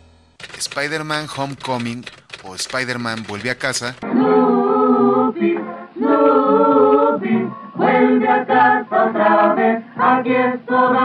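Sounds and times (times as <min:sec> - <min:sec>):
a cappella choir singing: 0:04.0 - 0:11.0.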